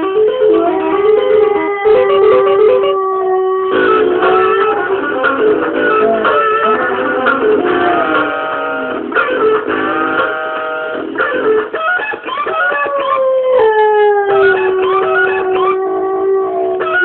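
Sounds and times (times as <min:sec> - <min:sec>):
plucked guitar music: 0:00.0 - 0:17.0
dog howling: 0:00.8 - 0:08.6, 0:11.2 - 0:17.0.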